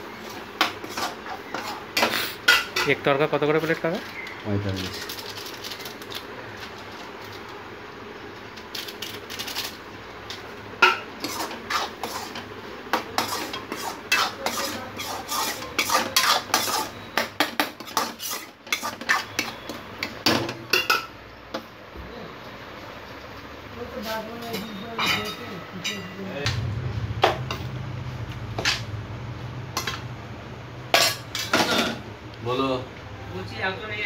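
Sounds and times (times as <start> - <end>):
steady sizzling hiss: 0.0 - 34.0
metal ladle scraping a pan: 0.6 - 2.9, 10.8 - 17.2, 17.8 - 19.8.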